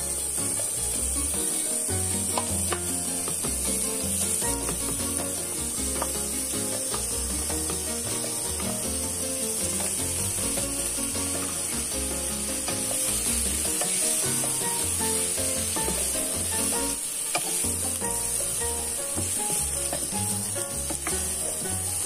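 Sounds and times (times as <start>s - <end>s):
background music: 0.0s - 22.0s
meat sizzling in a pan: 0.0s - 22.0s
wooden spatula scraping a pan: 9.5s - 22.0s.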